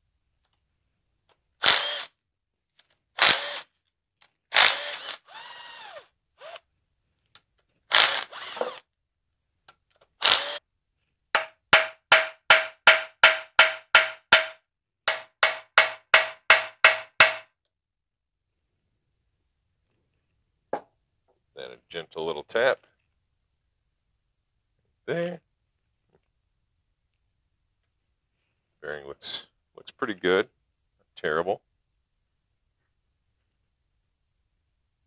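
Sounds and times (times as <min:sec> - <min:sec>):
impact driver running: 0:01.6 - 0:02.1, 0:03.2 - 0:03.6, 0:04.5 - 0:06.6, 0:07.9 - 0:08.8, 0:10.2 - 0:10.6
hammer tapping on metal: 0:11.4 - 0:17.5.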